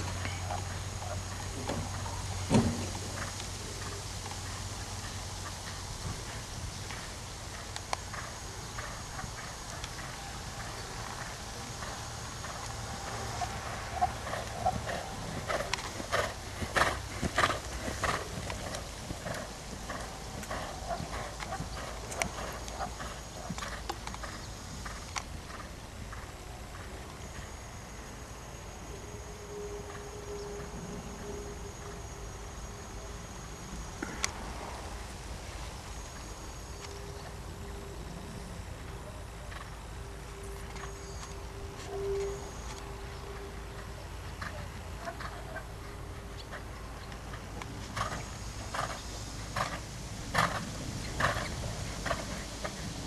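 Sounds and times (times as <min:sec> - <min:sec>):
horse hoofbeats on sand: 0:00.0 - 0:27.6, 0:47.3 - 0:53.0
faint ticks: 0:06.8 - 0:10.1.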